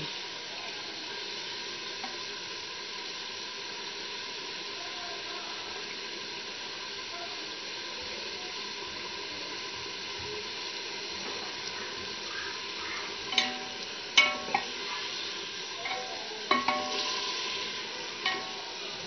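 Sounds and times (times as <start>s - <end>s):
meat sizzling in hot oil: 0.0s - 19.0s.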